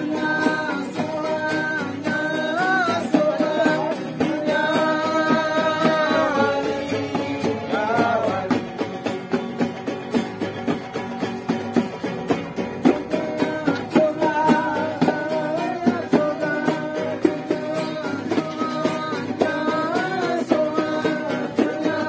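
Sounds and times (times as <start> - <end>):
group of voices singing: 0.0 - 9.7, 12.6 - 22.0
acoustic guitars strummed: 0.0 - 22.0.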